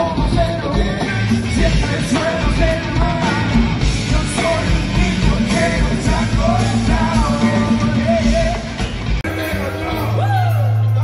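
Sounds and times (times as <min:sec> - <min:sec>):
live band playing: 0:00.0 - 0:11.0.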